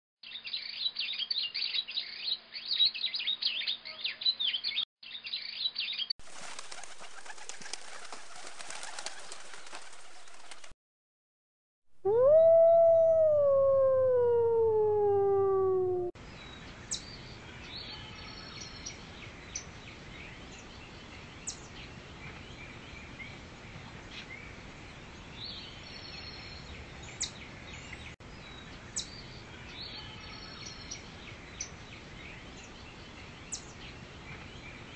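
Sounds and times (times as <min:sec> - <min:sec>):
forest ambience: 0:12.0 - 0:16.2
wolf howl: 0:12.0 - 0:16.2.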